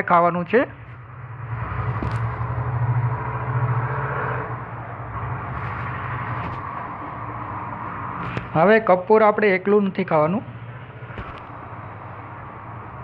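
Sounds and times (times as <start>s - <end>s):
low rumble and hum: 0.5s - 8.7s.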